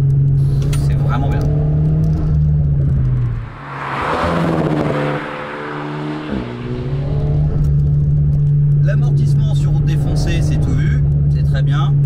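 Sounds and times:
rush of noise: 3.1 - 7.7.

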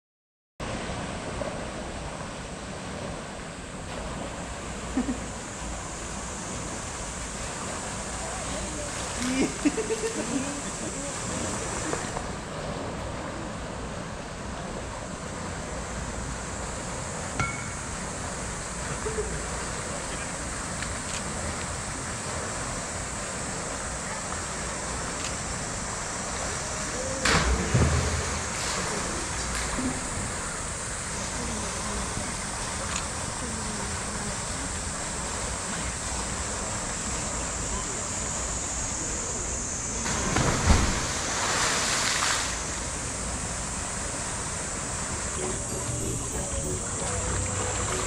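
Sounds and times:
background wash of noise: 0.6 - 48.0
heavy water splashes: 15.3 - 37.1, 40.0 - 48.0
loud water splash: 27.1 - 30.0, 40.0 - 45.4.

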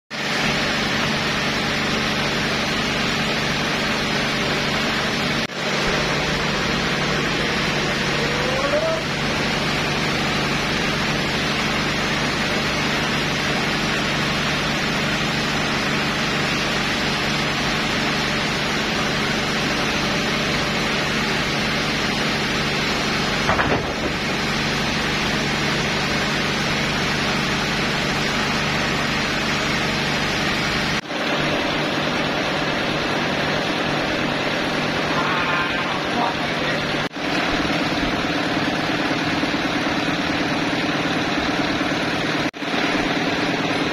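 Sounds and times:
band sawmill running: 0.1 - 43.9
brief knock: 23.5 - 24.1.

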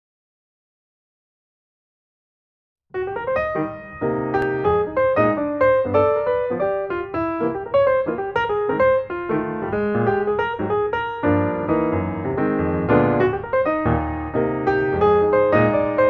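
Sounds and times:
piano music: 3.0 - 16.0.

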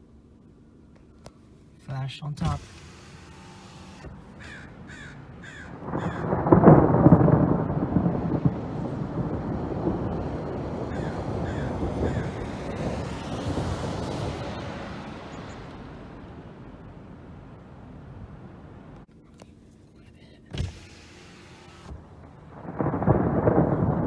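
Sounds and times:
thunder rumbling: 4.1 - 19.1, 22.0 - 24.0
bird calling: 4.2 - 6.4.

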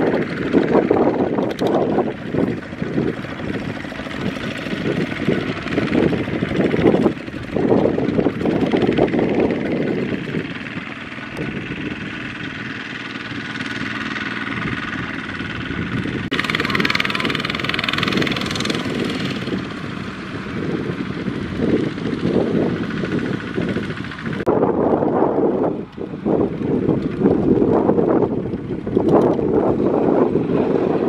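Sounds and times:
power tiller diesel engine running: 0.0 - 31.0.

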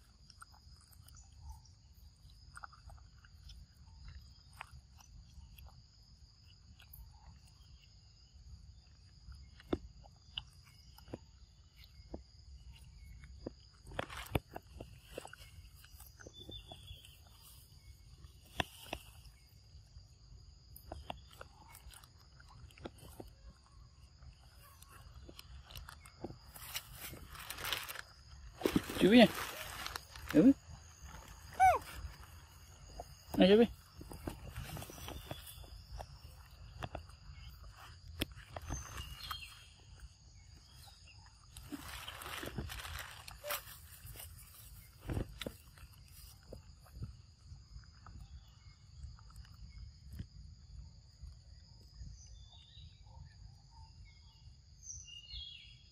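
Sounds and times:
clicks and crackles of dry leaves: 7.5 - 50.4.

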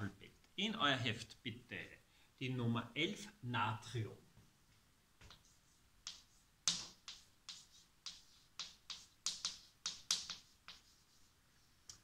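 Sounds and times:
chalk tapping and scraping on blackboard: 5.2 - 12.0.

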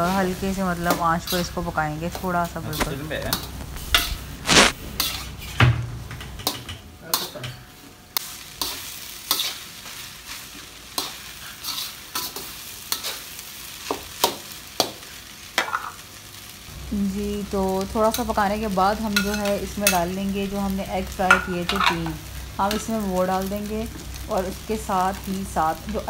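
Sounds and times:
frying sizzle: 0.0 - 26.0
metal spatula scraping wok: 2.5 - 5.6, 8.6 - 9.7, 11.0 - 13.2.

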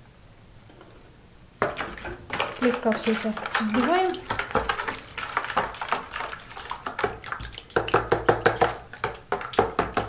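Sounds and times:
liquid sloshing: 1.6 - 10.0
utensil tapping plastic bowl: 6.8 - 10.0.

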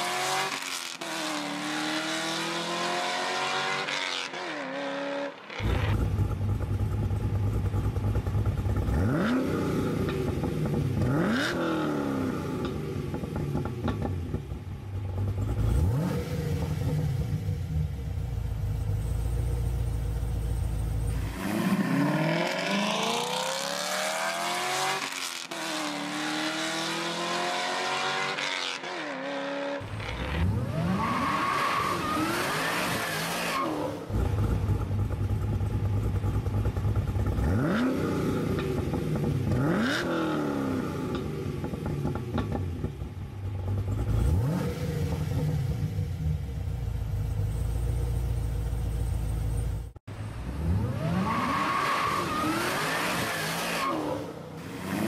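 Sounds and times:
car engine accelerating: 0.0 - 55.0.

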